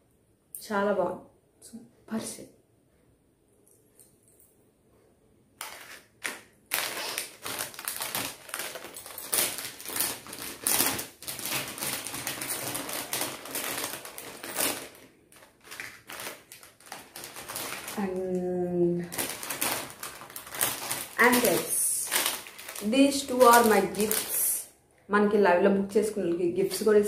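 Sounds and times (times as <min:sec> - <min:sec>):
packaging clicks and rustles: 0:05.6 - 0:24.4.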